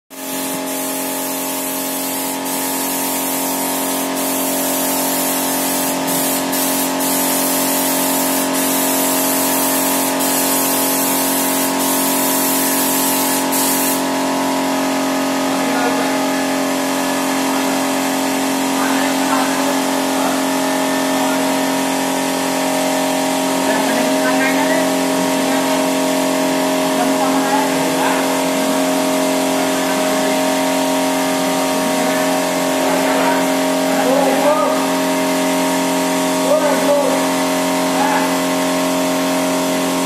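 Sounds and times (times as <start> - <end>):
spray gun hissing: 0.1 - 14.2
air compressor humming: 0.1 - 40.0.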